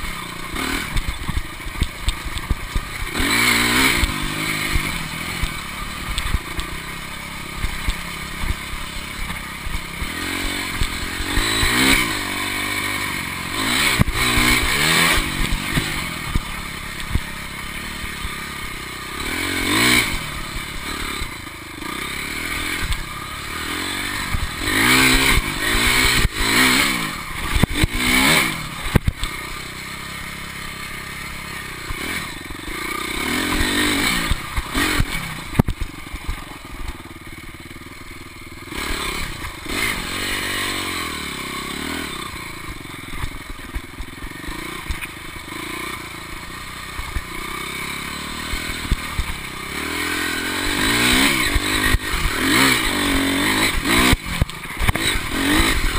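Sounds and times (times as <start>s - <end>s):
bike knocks and rattles over bumps: 0.0s - 12.3s, 31.8s - 37.7s
dirt bike engine revving: 0.0s - 55.9s.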